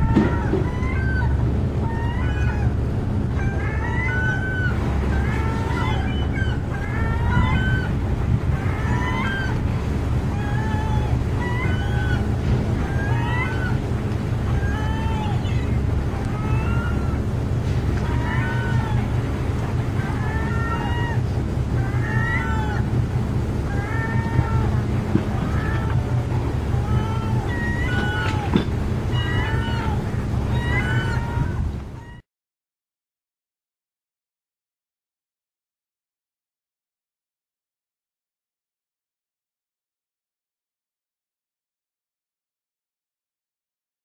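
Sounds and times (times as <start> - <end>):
gulls calling: 0.0 - 32.2
steady low rumble: 0.0 - 32.2.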